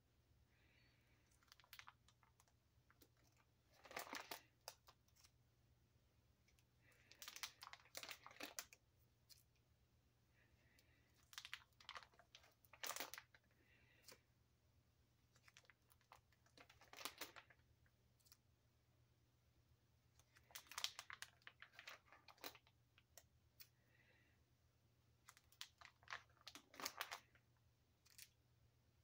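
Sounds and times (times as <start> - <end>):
plastic sleeves crinkling: 0.7 - 5.4, 6.4 - 9.6, 10.8 - 14.3, 15.2 - 18.5, 20.1 - 23.8, 25.2 - 28.4.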